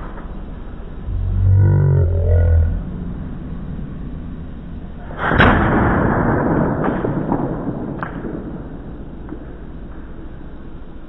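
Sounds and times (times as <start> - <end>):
potato cannon boom: 5.0 - 9.5.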